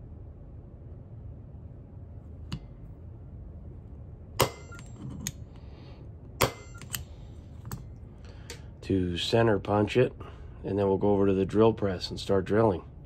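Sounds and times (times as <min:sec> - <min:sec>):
hammer striking metal punch: 0:04.4 - 0:05.4, 0:06.4 - 0:07.0.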